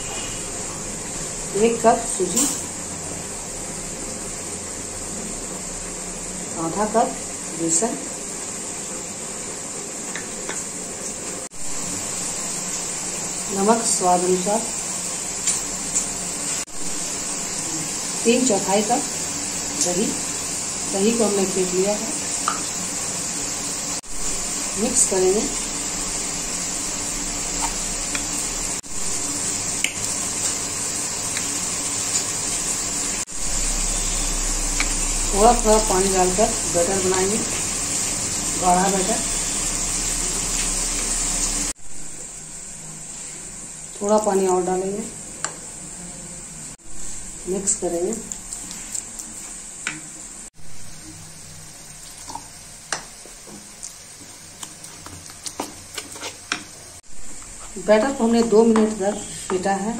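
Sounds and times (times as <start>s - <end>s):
spoon beating wet batter: 54.6s - 56.7s.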